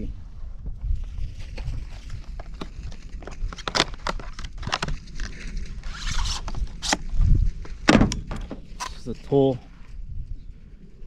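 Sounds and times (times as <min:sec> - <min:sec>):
clicks and scrapes of packaging: 0:01.9 - 0:07.1
packaging rustle: 0:02.1 - 0:07.0.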